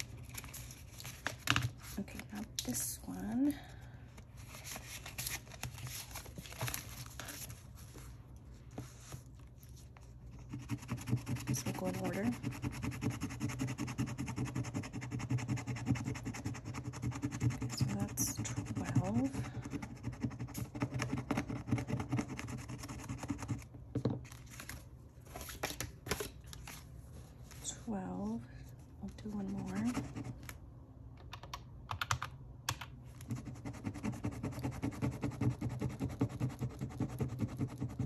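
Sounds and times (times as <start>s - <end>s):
paper and plastic rustling: 4.3s - 9.9s, 24.2s - 27.8s.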